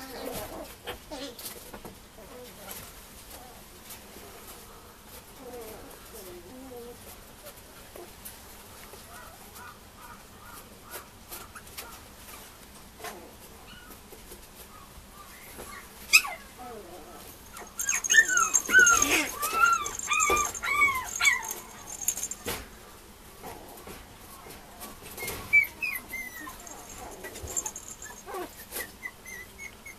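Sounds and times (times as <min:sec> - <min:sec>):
puppy whining and yelping: 0:15.3 - 0:22.5, 0:25.1 - 0:29.9.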